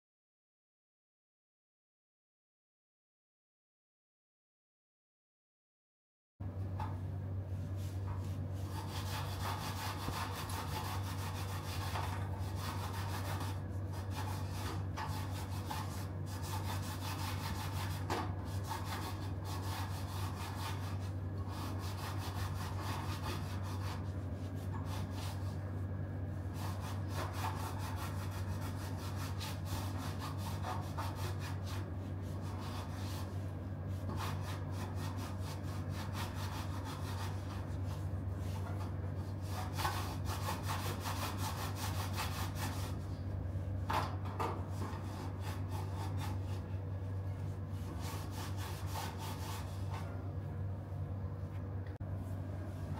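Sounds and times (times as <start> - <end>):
steady low hum: 6.4 - 52.9
cloth rubbing on bicycle rim: 47.5 - 50.1.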